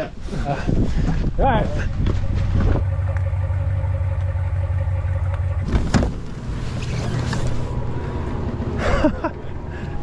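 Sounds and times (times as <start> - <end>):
truck engine humming: 2.4 - 10.0.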